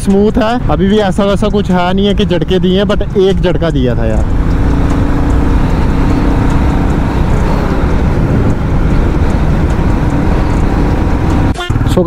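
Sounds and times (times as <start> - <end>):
motorcycle engine running: 0.0 - 12.0
road rumble: 0.0 - 12.0
wind on microphone: 4.2 - 11.5.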